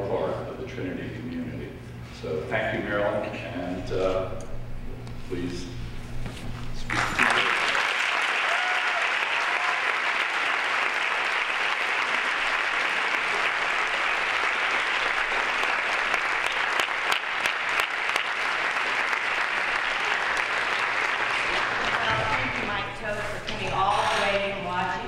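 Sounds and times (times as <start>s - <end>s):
audience applauding: 6.9s - 22.9s.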